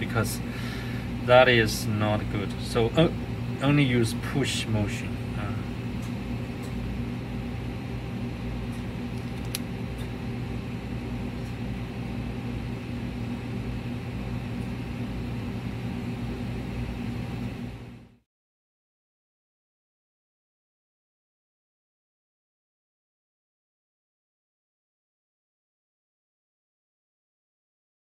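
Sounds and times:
fan machine hum: 0.0 - 18.2.

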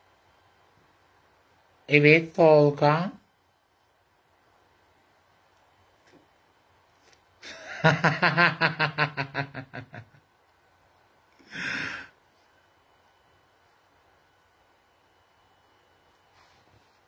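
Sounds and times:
woman laughing: 7.4 - 10.2.

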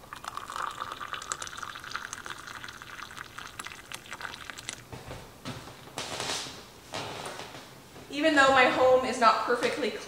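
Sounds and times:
water pouring into a mug: 0.0 - 4.8.

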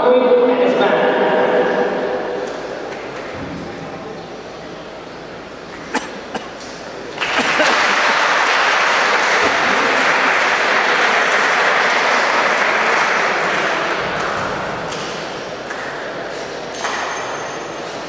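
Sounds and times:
crowd applauding: 7.1 - 15.9.

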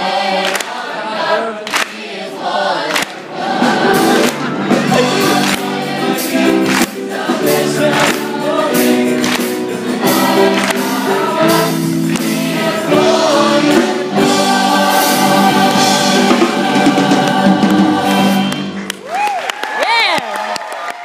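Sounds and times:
choir singing in harmony: 0.0 - 18.9
steady percussive beat: 2.9 - 18.9.

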